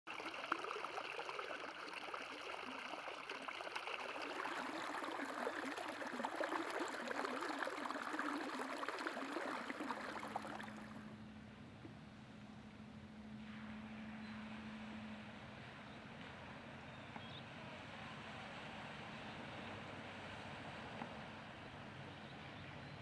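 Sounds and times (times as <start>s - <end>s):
water rushing along gutter: 0.1s - 11.1s
water splashing and gurgling: 0.1s - 11.1s.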